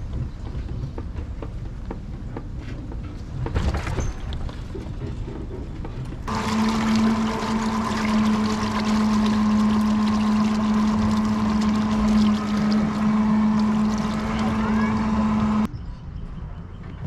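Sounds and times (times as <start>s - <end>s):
small electric motor humming: 6.3s - 15.7s
water rushing: 6.3s - 15.7s.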